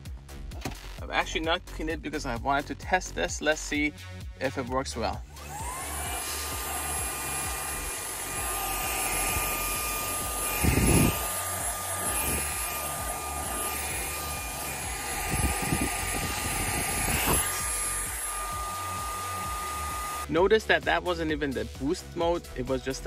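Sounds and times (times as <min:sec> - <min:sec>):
handheld vacuum whining: 0:05.3 - 0:20.3.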